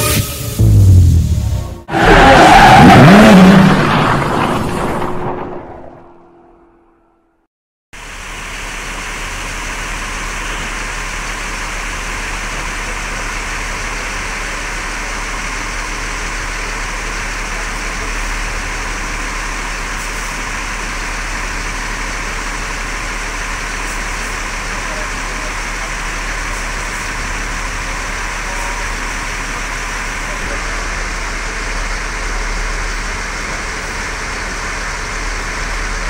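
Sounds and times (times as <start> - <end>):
bus engine running: 0.0 - 5.1, 8.0 - 36.0.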